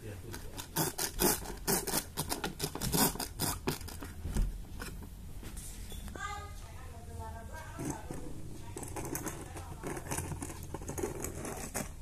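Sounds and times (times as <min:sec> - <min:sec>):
toy ratcheting while wound: 0:00.4 - 0:04.0.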